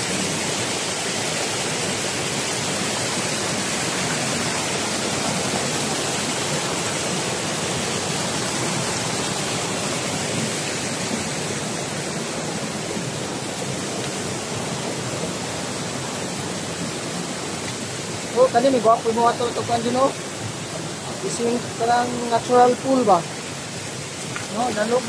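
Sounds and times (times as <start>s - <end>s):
stream rushing over boulders: 0.0s - 25.0s.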